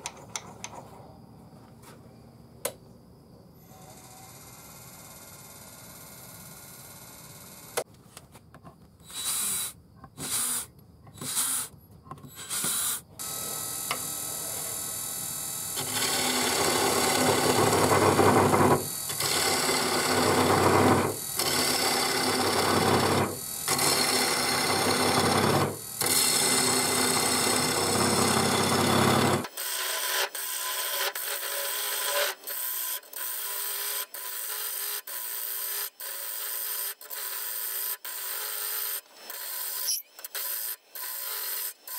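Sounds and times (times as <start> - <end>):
gouge cutting wood on a lathe: 15.8 - 32.6.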